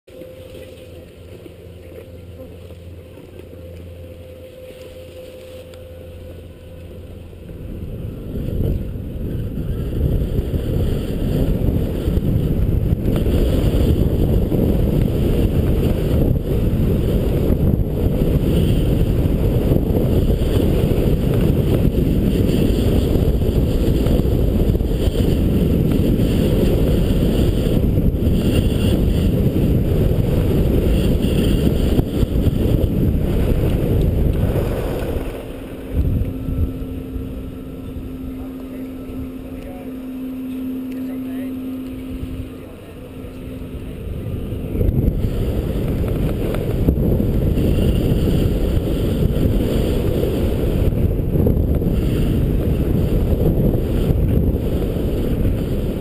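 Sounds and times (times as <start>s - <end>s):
wind buffeting microphone: 0.2s - 56.0s
skis sliding on snow: 13.0s - 36.0s.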